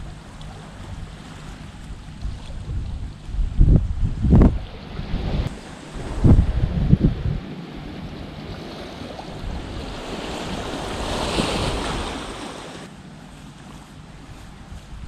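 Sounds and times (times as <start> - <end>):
wind on microphone: 0.0 - 12.9, 14.0 - 15.0
waves washing onto beach: 4.5 - 15.0.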